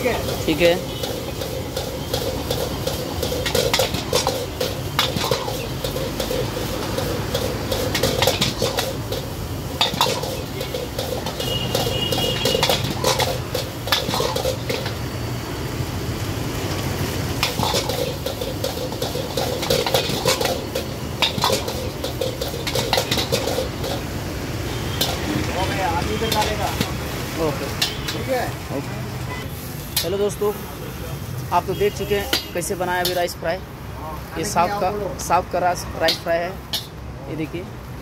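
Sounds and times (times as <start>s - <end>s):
metal utensils scraping a wok: 0.0s - 15.0s, 17.3s - 27.0s, 27.6s - 28.3s, 32.0s - 33.3s, 36.0s - 37.0s
gas burner roaring: 0.0s - 28.4s.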